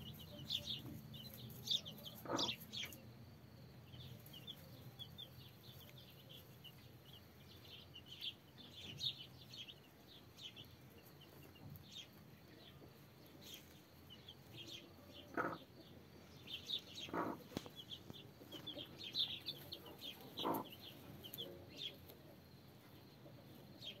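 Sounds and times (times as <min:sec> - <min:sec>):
hen clucking: 0:00.0 - 0:03.0, 0:15.0 - 0:16.0, 0:16.8 - 0:22.2
chicks peeping: 0:00.0 - 0:03.1, 0:03.9 - 0:24.0.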